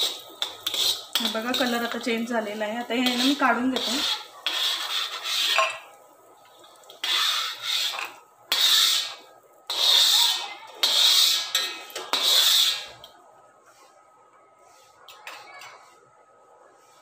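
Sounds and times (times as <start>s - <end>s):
steel spoon scraping metal pan: 0.0s - 13.1s.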